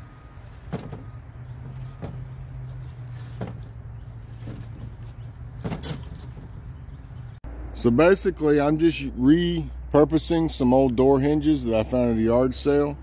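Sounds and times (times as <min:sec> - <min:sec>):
wire mesh rattling and tapping: 0:01.6 - 0:06.6.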